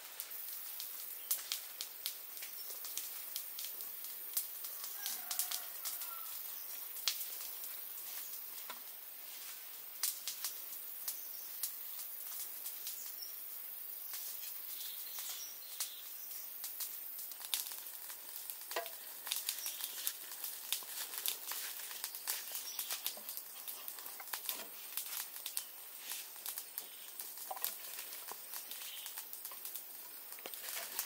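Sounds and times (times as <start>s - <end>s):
faint high hiss: 0.0s - 31.0s
hands handling food and leaves: 1.3s - 10.6s, 17.2s - 31.0s.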